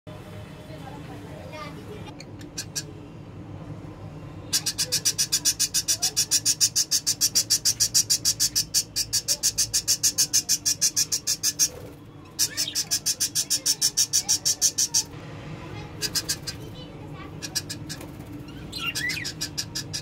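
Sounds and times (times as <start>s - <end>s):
budgerigar chirping: 4.6s - 11.8s, 12.4s - 15.1s, 17.4s - 20.0s.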